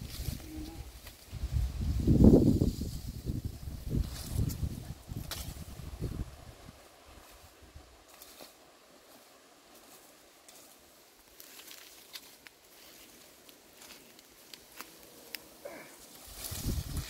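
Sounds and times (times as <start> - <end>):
faint clicks and rustles: 8.1 - 17.0.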